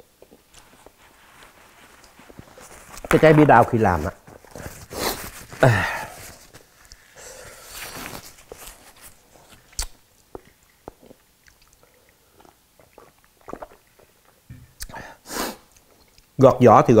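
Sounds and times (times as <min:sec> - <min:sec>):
paper napkin rustling: 0:00.5 - 0:09.7
chewing: 0:09.5 - 0:15.0, 0:15.7 - 0:16.4.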